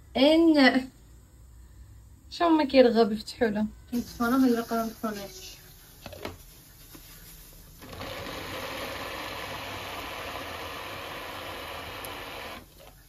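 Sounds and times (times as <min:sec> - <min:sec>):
kitchen appliance motor running: 0:07.8 - 0:12.8.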